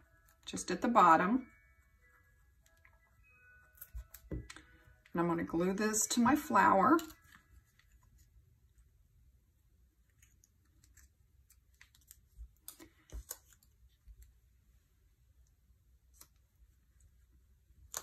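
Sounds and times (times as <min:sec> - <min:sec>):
faint paper clicks and taps: 0:10.1 - 0:14.3.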